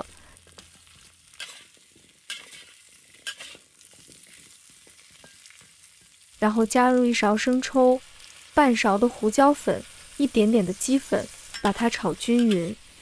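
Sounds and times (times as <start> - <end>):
food sizzling in oil: 0.0 - 13.0
spatula scraping a wok: 0.5 - 6.2, 9.7 - 13.0.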